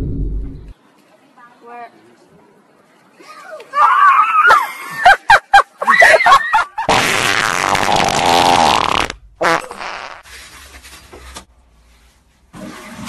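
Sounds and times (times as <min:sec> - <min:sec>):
long loud fart: 0:06.9 - 0:10.2.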